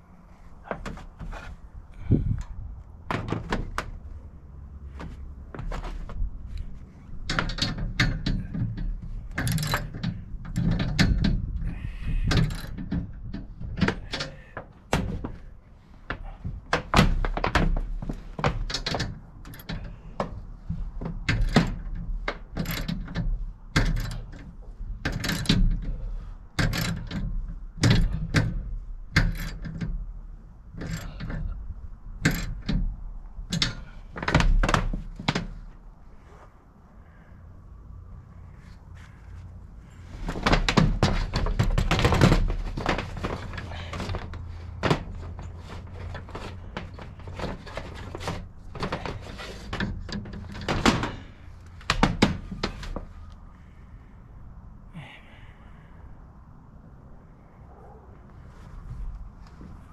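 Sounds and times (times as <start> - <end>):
low rumble: 0.0 - 7.3.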